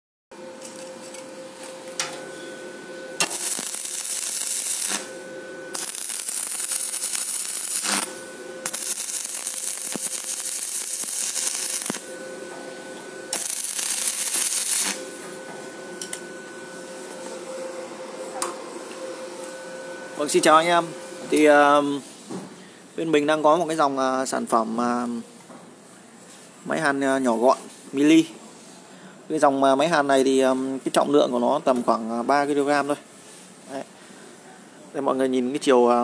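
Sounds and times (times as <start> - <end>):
steady hum: 0.4 - 26.2
welding arc crackle and hiss: 0.5 - 16.2.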